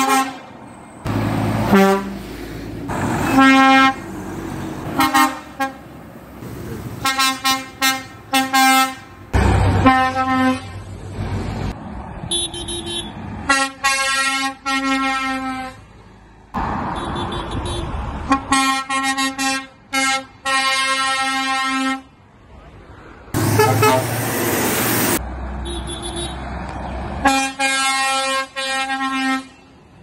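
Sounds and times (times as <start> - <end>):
passing traffic: 0.0 - 30.0
higher-pitched horn: 1.7 - 2.2, 3.2 - 4.0, 5.0 - 5.8, 23.4 - 24.3
lorry horn blasts: 1.7 - 2.2, 5.0 - 5.8, 23.4 - 24.1.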